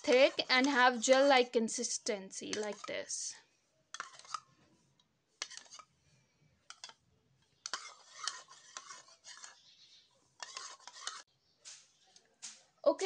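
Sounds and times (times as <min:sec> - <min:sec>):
metal spoon scraping a bowl: 0:00.0 - 0:04.6, 0:05.4 - 0:06.0, 0:06.7 - 0:11.3.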